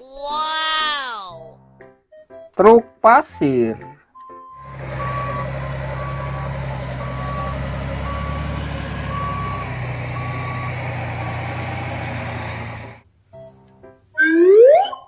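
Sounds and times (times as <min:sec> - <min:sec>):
truck reverse alarm beeping: 0:04.2 - 0:13.0
diesel engine running: 0:04.6 - 0:13.0.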